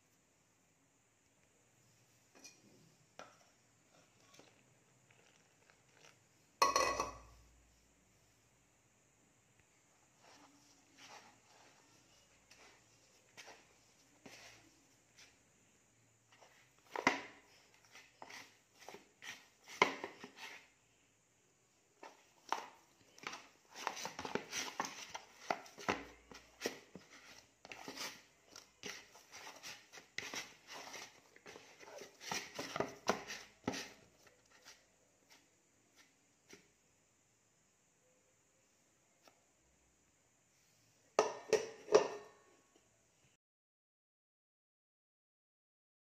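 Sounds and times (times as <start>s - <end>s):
dough squishing and slapping: 22.0s - 36.8s.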